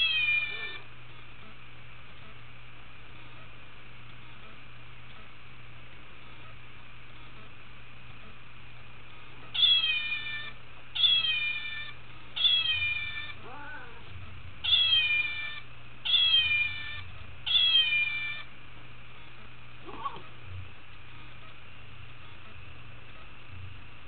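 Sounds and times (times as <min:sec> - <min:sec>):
cat meowing: 0:00.0 - 0:00.8, 0:09.6 - 0:18.5, 0:19.8 - 0:20.3.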